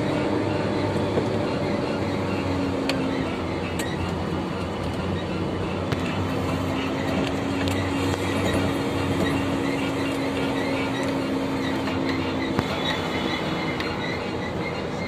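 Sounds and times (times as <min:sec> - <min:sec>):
vehicle engine and road noise: 0:00.0 - 0:15.0.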